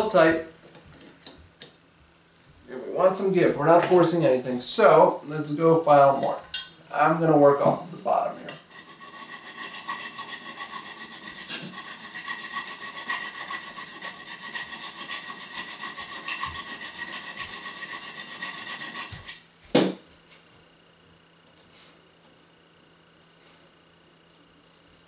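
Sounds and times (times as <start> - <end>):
hand file rasping on steel: 8.6 - 19.4
sharp knock: 19.8 - 20.0.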